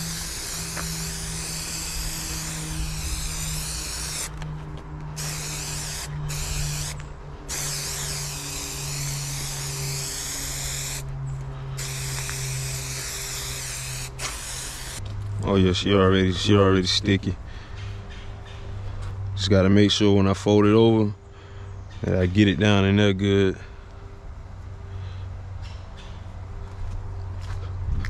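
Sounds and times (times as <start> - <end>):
aerosol can spraying: 0.0 - 11.1, 11.8 - 15.0.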